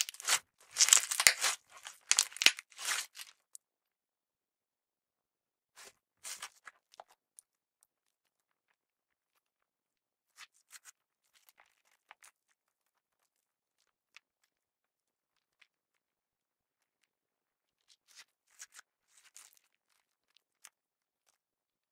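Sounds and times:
slime clicking and crackling: 0.0s - 3.5s.

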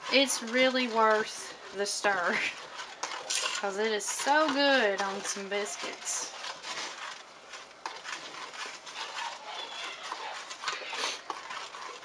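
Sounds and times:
spoon scraping metal pot: 0.0s - 12.0s.

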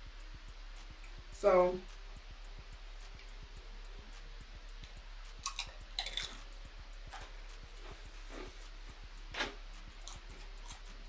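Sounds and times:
wet chewing and mouth sounds: 1.9s - 11.0s
tortilla chip crunching: 5.4s - 6.4s.

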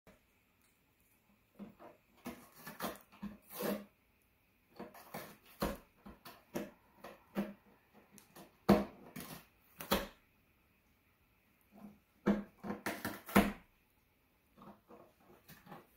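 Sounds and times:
cat crunching cardboard box: 1.5s - 4.0s, 4.7s - 10.2s, 11.8s - 13.7s.

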